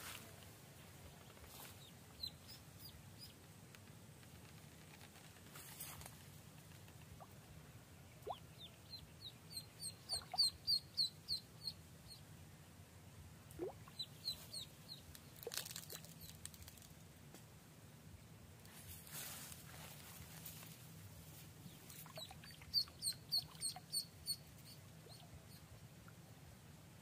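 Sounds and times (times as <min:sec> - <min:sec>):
duckling peeping: 0:01.8 - 0:03.4, 0:08.2 - 0:12.2, 0:13.6 - 0:15.0, 0:21.7 - 0:25.6.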